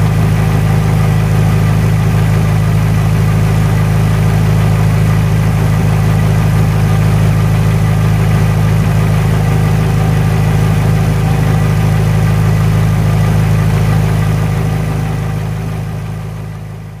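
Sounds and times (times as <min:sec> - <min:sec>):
car engine running steadily: 0:00.0 - 0:17.0.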